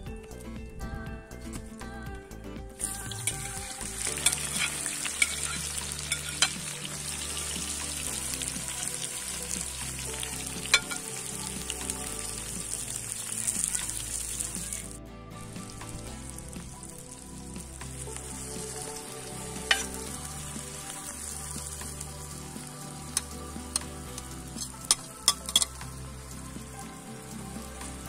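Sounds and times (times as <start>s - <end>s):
onions sizzling in hot oil: 2.8s - 28.0s
metal spoon knocking and scraping pan: 4.2s - 6.6s, 24.6s - 25.7s.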